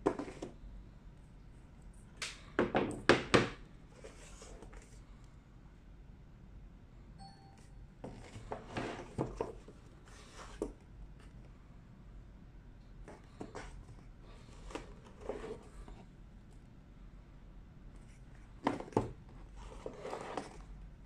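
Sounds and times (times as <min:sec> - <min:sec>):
cardboard boxes scraping: 0:19.6 - 0:20.7.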